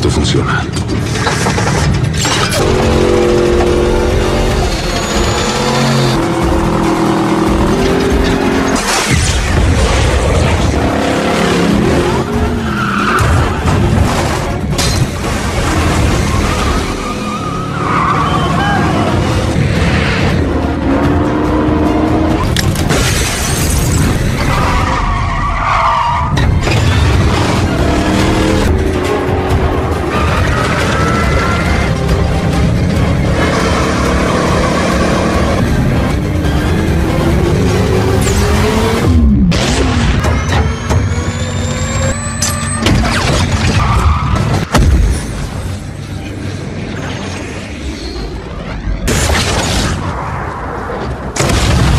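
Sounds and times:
tyres skidding and squealing: 0.0 - 51.6
car engine noise: 0.0 - 51.9
film music score: 0.0 - 51.9
car engine running hard: 2.6 - 8.8.

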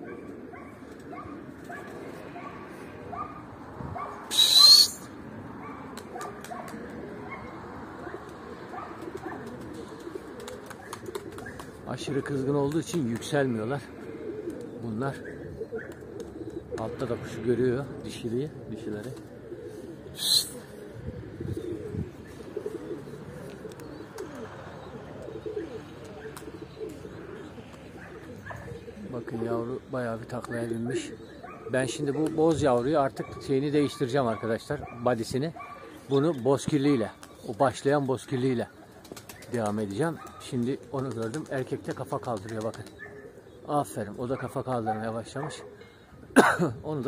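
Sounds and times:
pigeons cooing: 0.0 - 47.0
breathy rising whistle: 4.3 - 5.0, 20.2 - 20.6.

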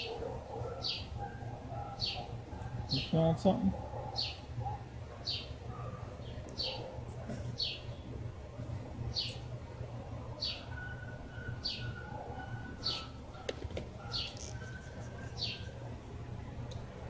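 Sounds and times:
steady low hum: 0.0 - 17.0
bird chirping: 0.7 - 1.2, 10.4 - 13.2, 14.0 - 15.8.

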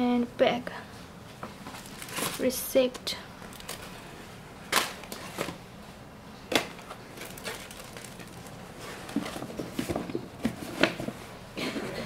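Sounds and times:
tissue paper rustling: 1.7 - 2.5.

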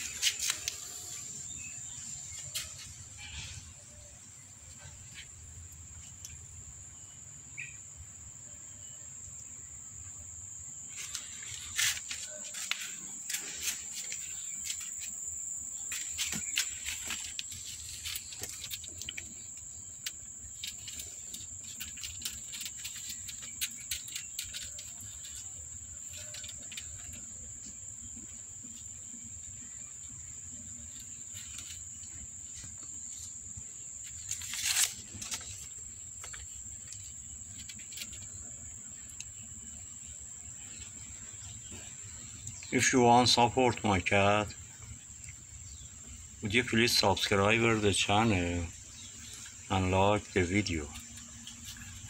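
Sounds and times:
rustle: 0.0 - 6.4, 10.8 - 52.0
insects droning: 0.0 - 52.0.

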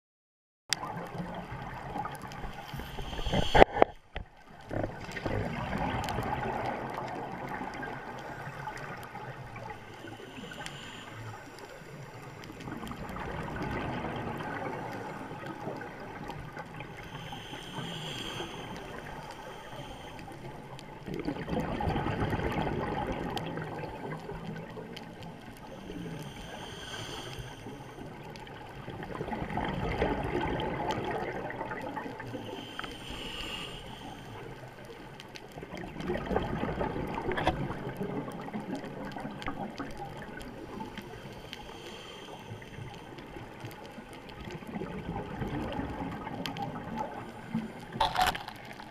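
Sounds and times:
exhaust bubbles gurgling: 0.8 - 10.5, 12.6 - 17.5, 20.9 - 25.4, 28.1 - 32.6, 35.6 - 41.2, 43.2 - 48.9
regulator inhale hiss: 2.5 - 4.0, 8.2 - 12.8, 16.8 - 20.8, 25.6 - 28.2, 32.2 - 34.8, 40.7 - 43.2.

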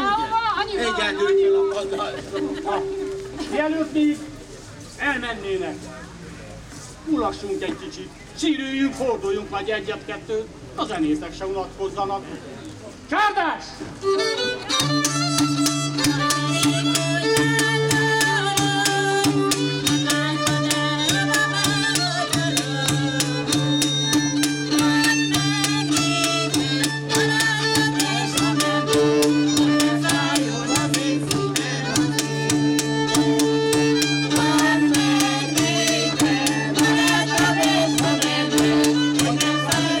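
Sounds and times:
fiddle playing a tune: 0.0 - 4.5, 14.0 - 40.0
struck string beat: 14.0 - 40.0.

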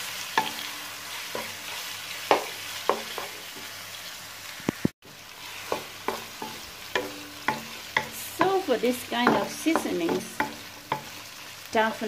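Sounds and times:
meat sizzling in hot oil: 0.0 - 12.0
wooden spatula scraping a pan: 5.3 - 11.2.

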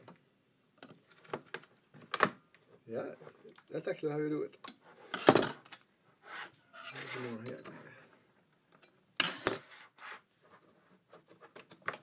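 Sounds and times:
loud sharp plastic snap: 1.3 - 2.4.

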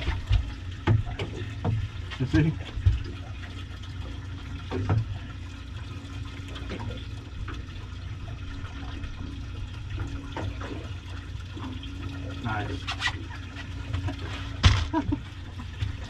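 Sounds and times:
water sloshing around boat: 0.0 - 16.0.

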